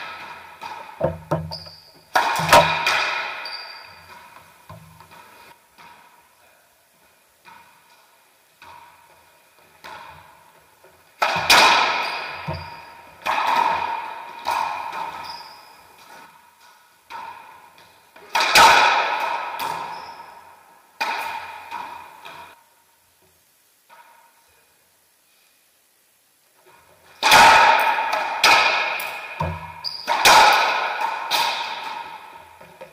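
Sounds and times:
racquetball hits echoing: 0:00.0 - 0:06.3, 0:09.8 - 0:22.6, 0:27.2 - 0:32.9.

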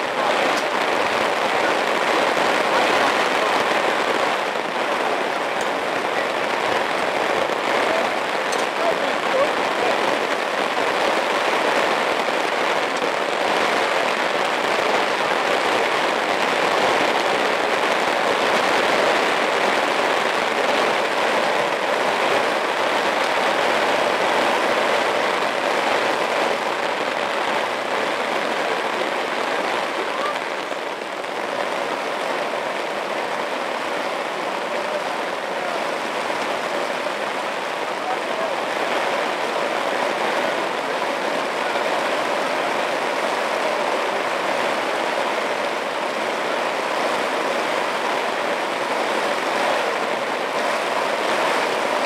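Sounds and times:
steady rain falling: 0:00.0 - 0:52.0.

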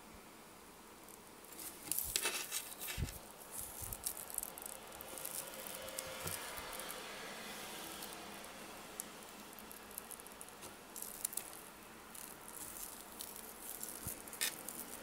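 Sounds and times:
wristwatch rustling and clicks: 0:01.5 - 0:07.0, 0:09.0 - 0:15.0.

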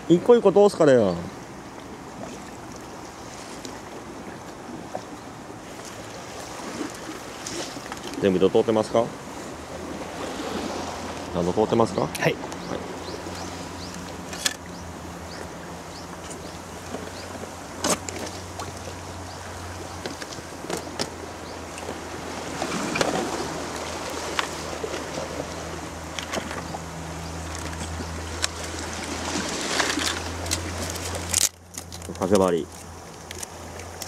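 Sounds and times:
sea washing against rocks: 0:05.5 - 0:14.4, 0:15.0 - 0:31.4.

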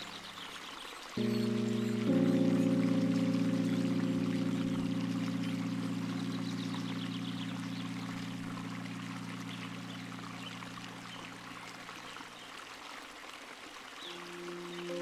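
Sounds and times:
running water rushing: 0:00.0 - 0:15.0
low background music chord: 0:01.2 - 0:11.8, 0:14.1 - 0:15.0.

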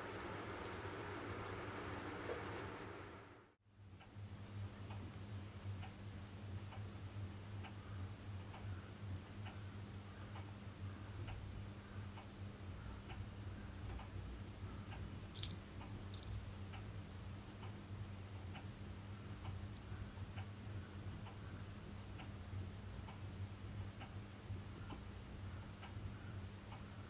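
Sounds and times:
constant low hum: 0:00.0 - 0:27.0
clock ticking: 0:11.1 - 0:27.0.

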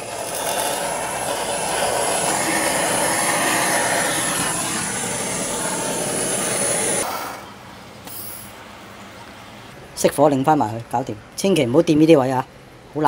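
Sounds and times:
blowtorch hissing and whistling: 0:00.0 - 0:07.5.

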